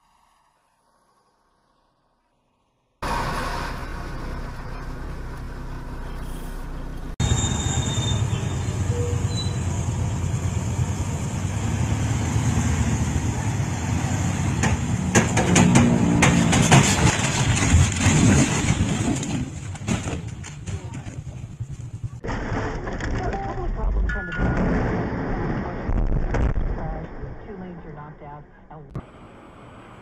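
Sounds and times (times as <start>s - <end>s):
truck rumble and road noise: 3.0s - 22.6s, 26.8s - 30.0s
logs crashing onto road: 14.6s - 21.2s, 22.2s - 23.8s.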